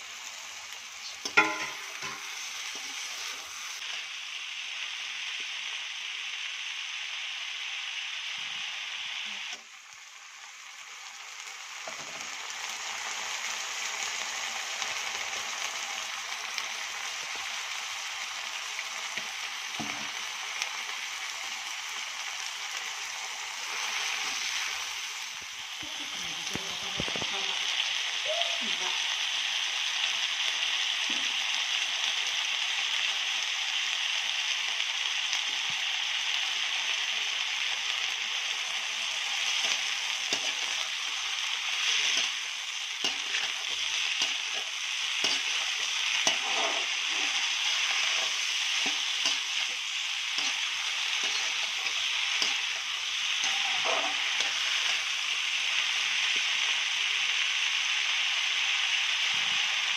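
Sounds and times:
food sizzling in a wok: 0:00.0 - 0:59.9
spatula scraping a pan: 0:43.0 - 0:55.0.

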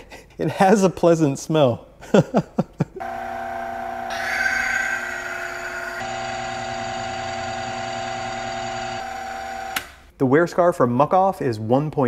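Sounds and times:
electric motor humming: 0:03.0 - 0:10.0.

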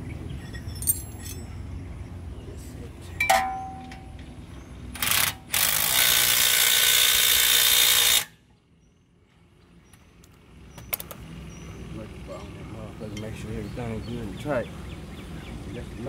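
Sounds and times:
metal clink: 0:00.4 - 0:01.6, 0:03.2 - 0:04.3
impact wrench hammering: 0:03.2 - 0:04.2.

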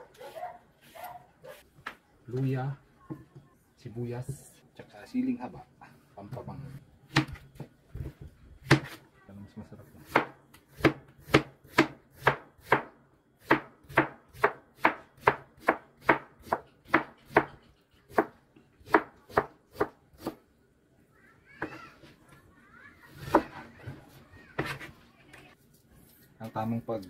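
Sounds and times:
knife chopping cucumber on board: 0:07.1 - 0:09.0, 0:10.0 - 0:20.4.

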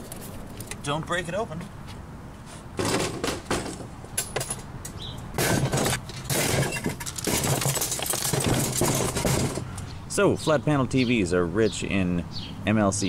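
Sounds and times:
broken pieces clattering into bin: 0:05.4 - 0:09.6.

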